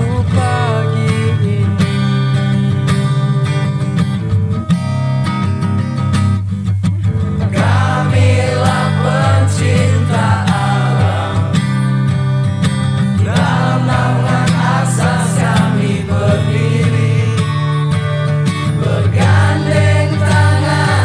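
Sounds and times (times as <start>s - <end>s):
guitar accompaniment: 0.0s - 21.0s
steady bass line: 4.4s - 21.0s
person singing: 7.6s - 11.7s, 13.2s - 17.7s, 18.8s - 21.0s.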